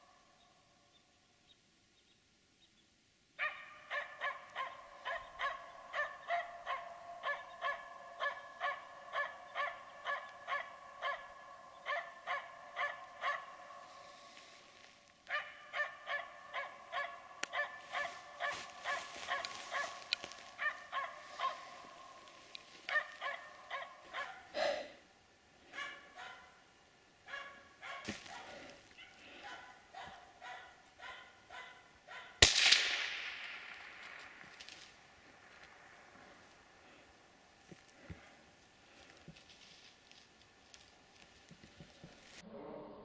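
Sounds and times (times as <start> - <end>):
dog barking rapidly: 3.4 - 13.9, 15.3 - 22.0, 22.9 - 24.5, 25.7 - 26.6, 27.3 - 32.4.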